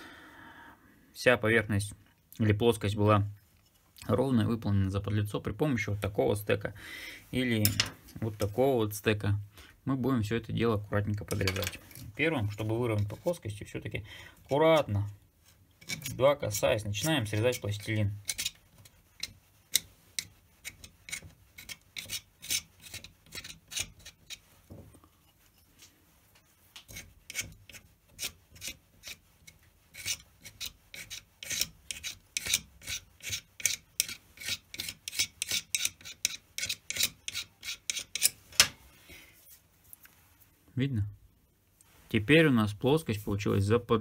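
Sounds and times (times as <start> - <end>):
tool scraping plasticine: 11.0 - 38.8.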